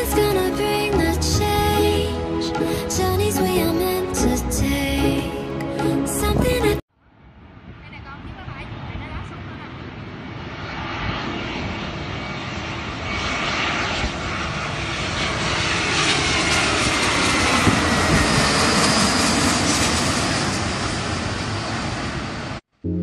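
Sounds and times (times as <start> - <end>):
jet airliner passing overhead: 7.1 - 22.6
jet engine whine falling: 7.2 - 23.0.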